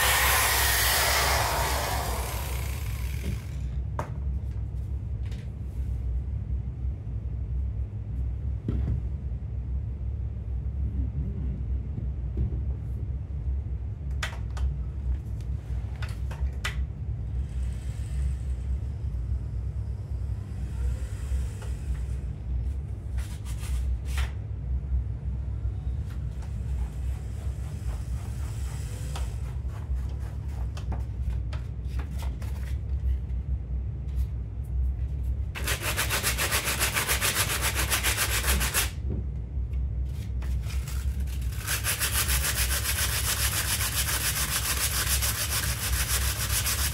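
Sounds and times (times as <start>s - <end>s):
wire wheel scrubbing wood: 0.0s - 3.2s
power tool motor hum: 0.0s - 3.6s.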